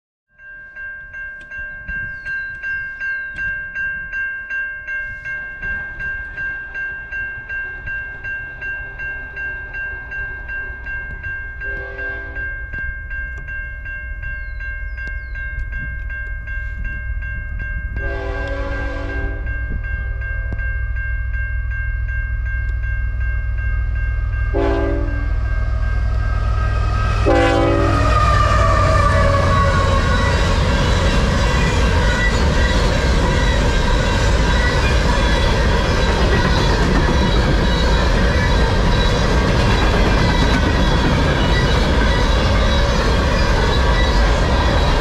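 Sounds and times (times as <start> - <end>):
railway crossing bell ringing: 0.3 - 45.0
low train rumble: 0.6 - 45.0
locomotive horn blasts: 11.6 - 12.6, 18.0 - 19.6, 24.5 - 25.8, 27.2 - 30.3.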